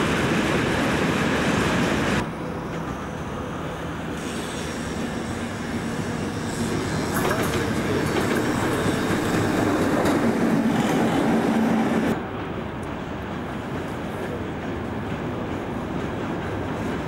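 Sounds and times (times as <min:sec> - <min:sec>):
diesel locomotive engine drone: 0:00.0 - 0:17.0
wheels clattering over rail joints: 0:06.6 - 0:11.8.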